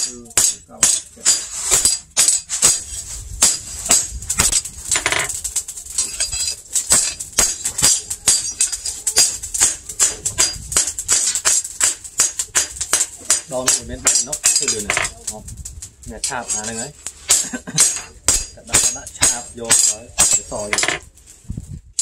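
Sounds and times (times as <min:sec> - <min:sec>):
hammer striking metal blade: 0:16.4 - 0:21.0.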